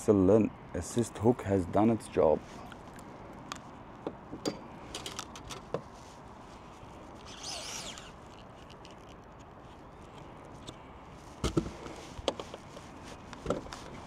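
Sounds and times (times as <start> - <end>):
light handling clicks and knocks: 2.7 - 5.9, 11.4 - 13.9
brief high squeak: 7.2 - 8.2.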